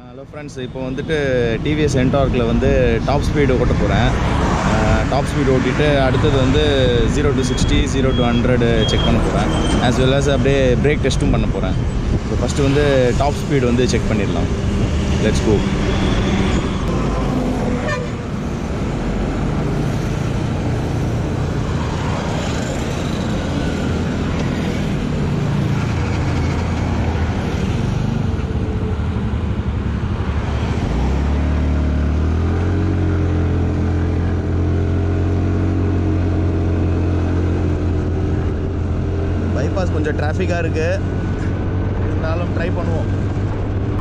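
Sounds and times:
surrounding traffic: 0.0s - 44.0s
wind rumble on microphone: 11.2s - 12.5s.

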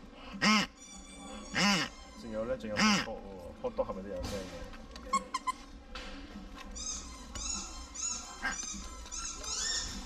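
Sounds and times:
dog toy squeaker squeaking: 0.7s - 3.0s, 5.1s - 5.7s, 6.8s - 10.0s.

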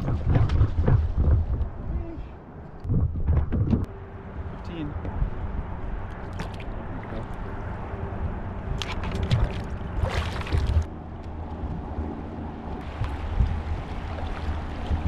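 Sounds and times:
wind rumble on microphone: 0.0s - 15.0s
water sloshing around kayak: 6.1s - 7.6s, 8.7s - 10.9s, 12.8s - 15.0s
sharp water splashes: 6.2s - 7.4s, 8.8s - 10.9s, 12.8s - 15.0s.

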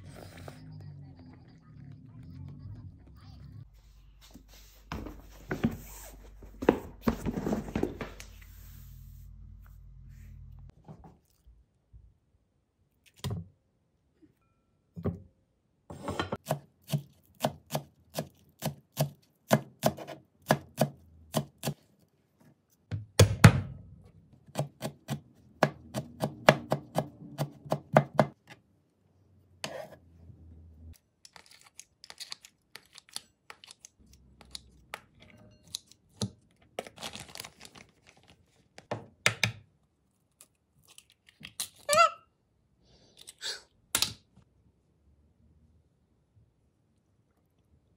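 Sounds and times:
knife chopping on plastic board: 16.4s - 21.8s, 24.4s - 28.4s.

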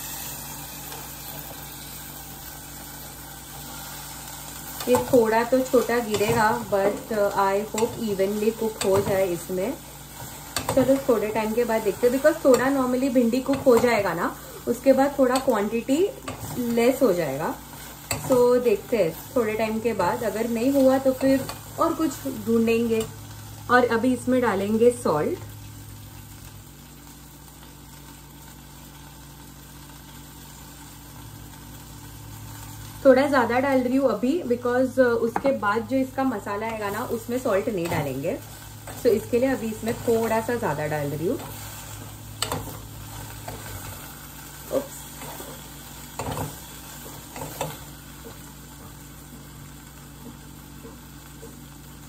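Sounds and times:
okra sizzling in oil: 0.0s - 52.0s
low steady hum: 31.0s - 52.0s.

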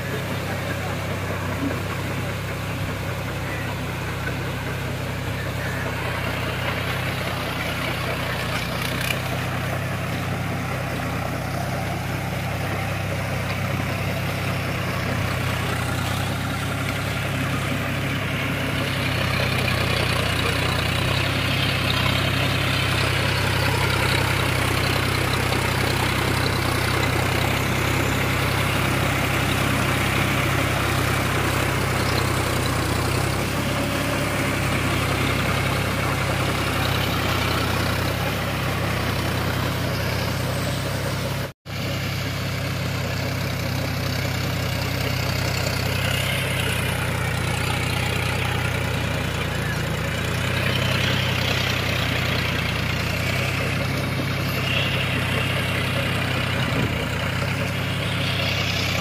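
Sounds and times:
tractor diesel engine running: 0.0s - 59.0s
rotavator churning mud: 44.4s - 59.0s.

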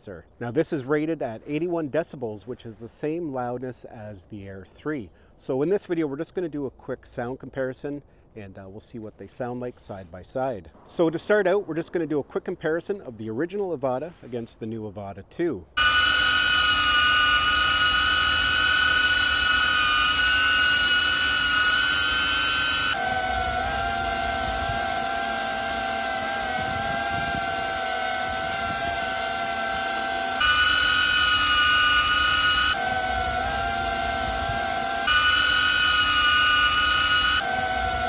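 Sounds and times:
drone propellers loud high whine: 15.8s - 38.0s
drone quieter lower whine: 15.8s - 38.0s.

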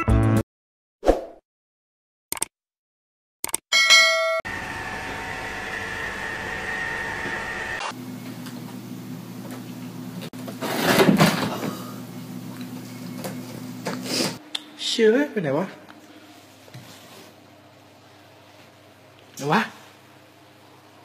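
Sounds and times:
bell-like chime: 3.7s - 4.4s
steady background hum: 7.8s - 21.0s.

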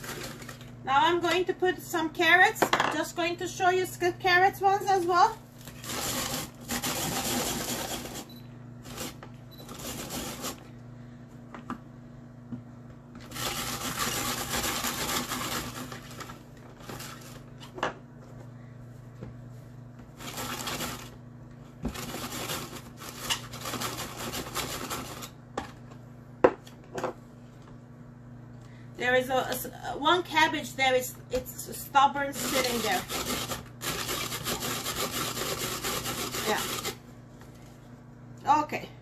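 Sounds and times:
rotary grater shredding carrots: 5.6s - 10.6s, 13.2s - 17.4s, 20.2s - 21.2s, 21.8s - 25.4s, 32.1s - 37.1s.

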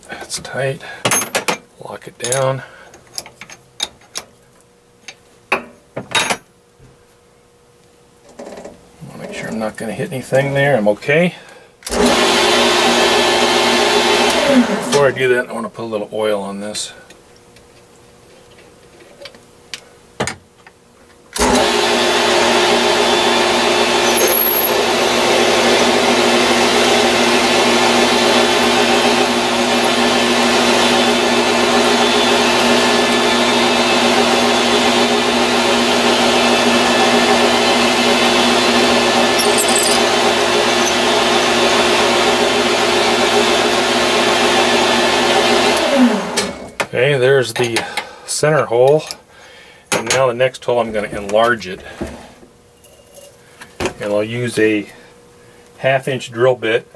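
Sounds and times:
drill boring metal: 11.9s - 15.0s, 21.4s - 46.5s
motor winding down: 11.9s - 15.1s, 21.4s - 46.6s
metal lathe running: 21.4s - 46.4s.

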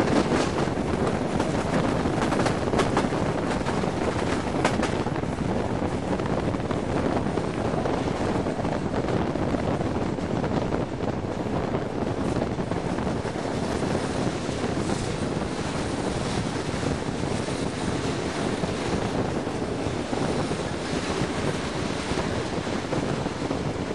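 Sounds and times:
train running noise: 0.0s - 23.9s
wind rushing over microphone: 0.0s - 23.9s.

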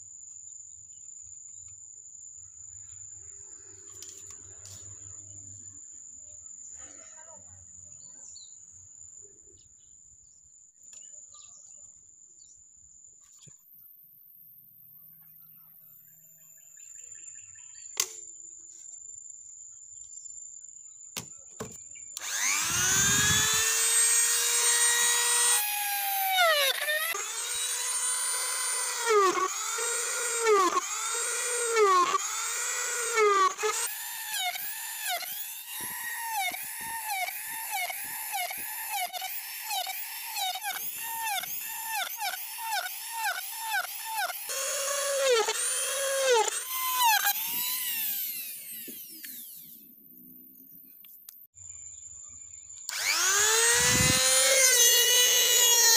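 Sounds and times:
rotary tool whining: 2.8s - 5.6s, 21.2s - 51.5s, 52.8s - 55.9s
rotary tool boring plastic pipe: 21.6s - 49.8s, 52.9s - 55.9s.

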